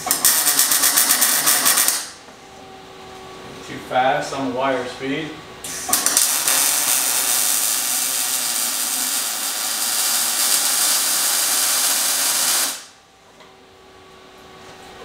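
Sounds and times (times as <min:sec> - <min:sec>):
welder arc sizzling hiss: 0:05.6 - 0:13.0.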